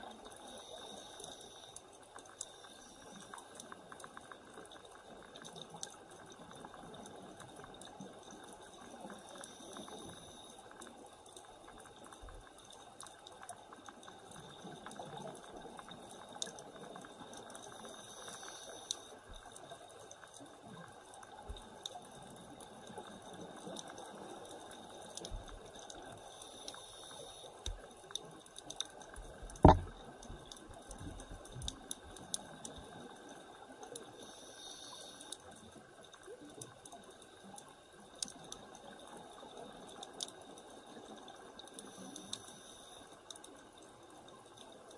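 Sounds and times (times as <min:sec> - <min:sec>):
faint hiss: 0:00.4 - 0:03.6, 0:14.2 - 0:19.8, 0:22.0 - 0:28.3, 0:30.8 - 0:36.0, 0:37.0 - 0:44.3
underwater clicks crackling: 0:27.6 - 0:33.1
loud sharp knock: 0:29.6 - 0:29.9.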